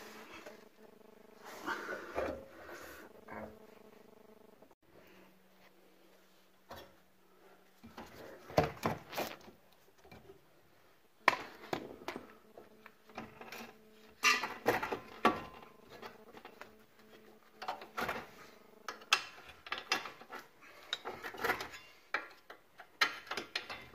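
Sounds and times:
faint steady hum: 0.0 - 23.9
metal tools clanking and scraping: 13.2 - 16.1, 17.6 - 22.3.

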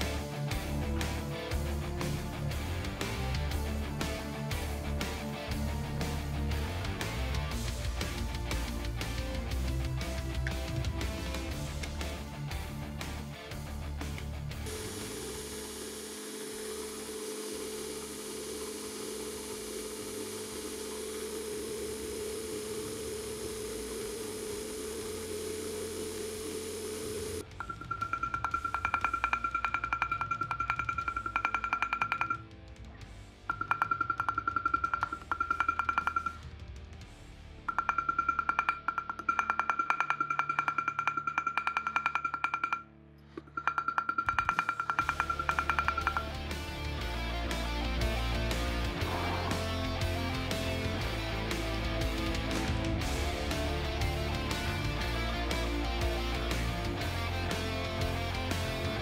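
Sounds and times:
hammer tapping metal on anvil: 27.7 - 32.4, 33.5 - 36.4, 37.7 - 42.8, 43.4 - 46.4.

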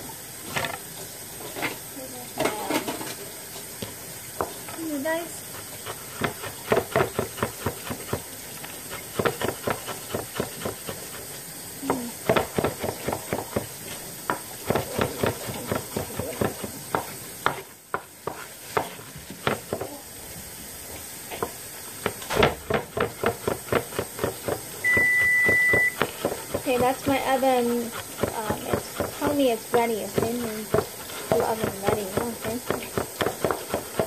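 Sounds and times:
cleaver chopping on wooden board: 6.1 - 8.3, 9.1 - 11.1, 12.2 - 13.7, 14.3 - 19.9, 21.4 - 27.0, 28.0 - 34.0.

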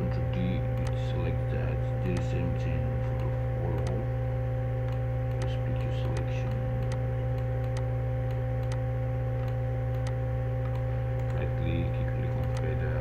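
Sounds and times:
low electrical hum: 0.0 - 13.0
computer mouse clicks: 0.8 - 1.1, 2.0 - 2.4, 3.1 - 4.0, 4.8 - 8.8, 9.4 - 11.5, 12.3 - 13.0.

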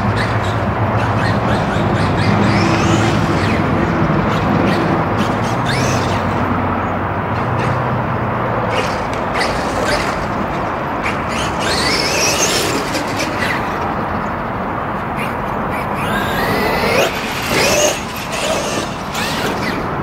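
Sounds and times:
steady rush of noise: 0.0 - 20.0
electric motor whine: 15.2 - 19.9.

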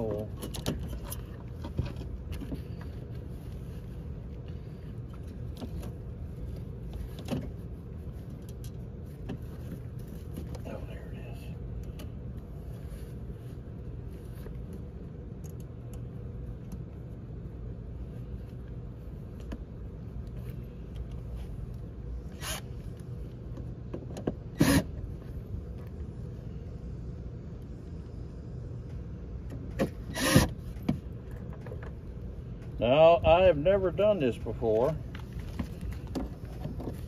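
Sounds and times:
steady low hum: 0.0 - 37.0
cordless drill bursts: 24.6 - 24.9, 30.1 - 30.5.

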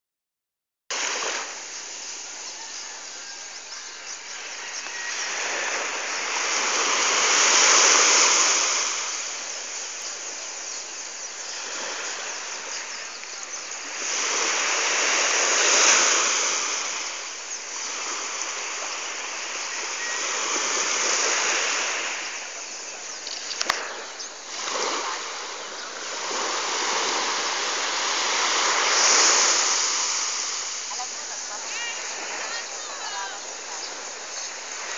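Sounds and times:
small waves breaking on beach: 0.9 - 34.9
brief click: 23.2 - 23.8.

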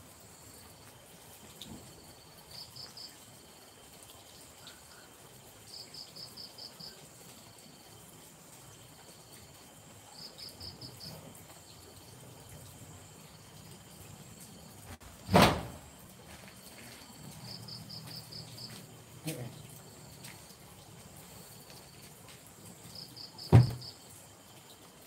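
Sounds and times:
crickets chirping: 0.0 - 25.0
loud knocks: 23.5 - 23.9.

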